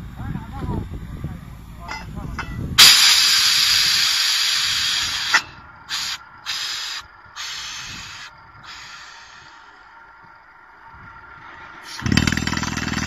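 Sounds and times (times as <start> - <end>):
short bursts of air: 2.8 - 9.8
compressed air hissing: 2.8 - 10.0, 11.8 - 12.2.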